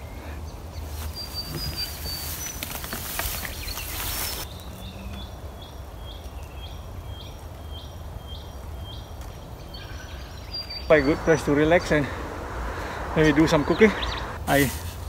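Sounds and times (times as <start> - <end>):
low wind rumble: 0.0 - 15.0
grass rustling: 0.8 - 5.4, 10.9 - 15.0.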